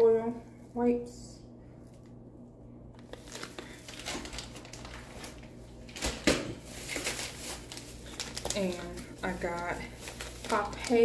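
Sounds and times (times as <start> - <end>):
plastic packets crinkling: 3.0 - 11.0.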